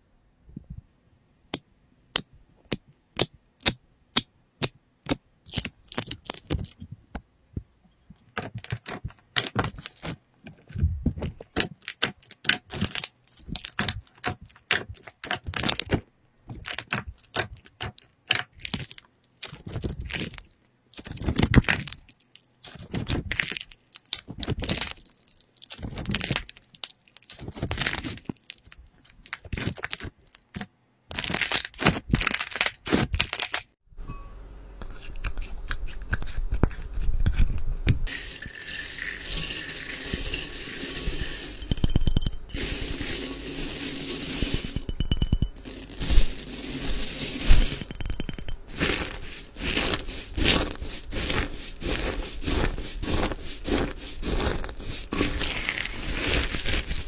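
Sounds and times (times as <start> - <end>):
slime crackling and popping: 47.4 - 57.0.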